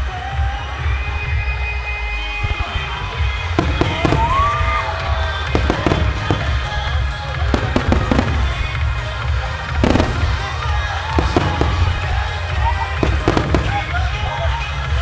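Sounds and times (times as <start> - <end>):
music: 0.0 - 15.0
firework shells bursting: 9.8 - 14.0.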